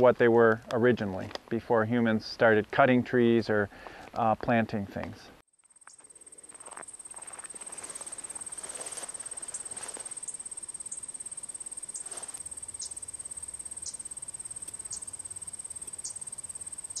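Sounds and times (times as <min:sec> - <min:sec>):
insect pulsing trill: 0:05.5 - 0:17.0
faint rustling: 0:06.0 - 0:10.4, 0:12.0 - 0:12.5.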